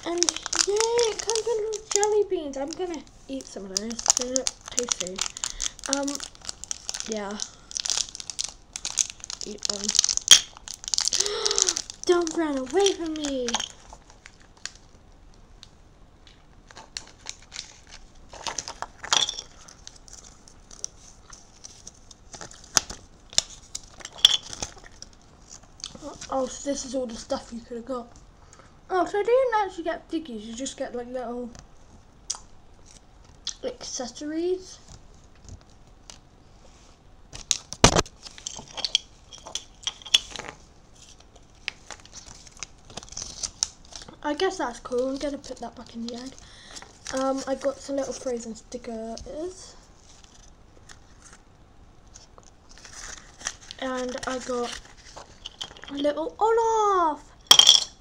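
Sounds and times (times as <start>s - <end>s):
paper leaflet rustling: 0.0s - 15.0s, 52.1s - 56.0s
plastic bags crinkling: 0.0s - 15.0s, 15.6s - 26.6s, 37.3s - 48.5s, 49.7s - 56.6s.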